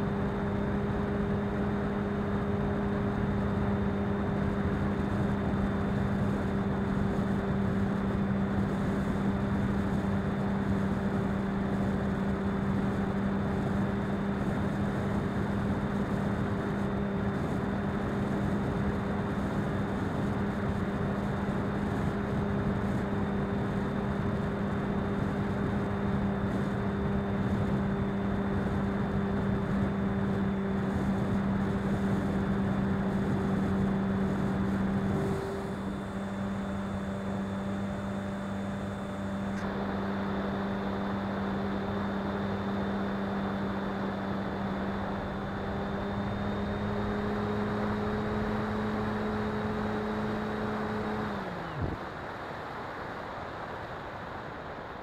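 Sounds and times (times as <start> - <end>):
motor and propeller hum: 0.0 - 55.0.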